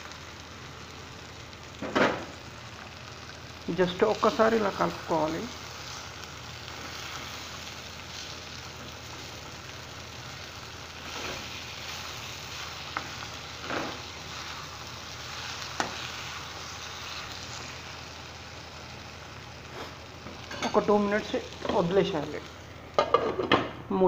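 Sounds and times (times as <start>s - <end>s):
food sizzling in a frying pan: 0.0s - 24.0s.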